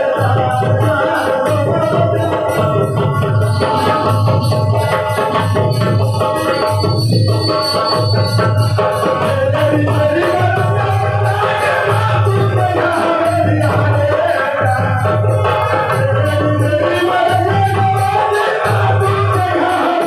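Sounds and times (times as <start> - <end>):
hand drums: 0.0 - 20.0
person singing into a microphone: 0.0 - 20.0.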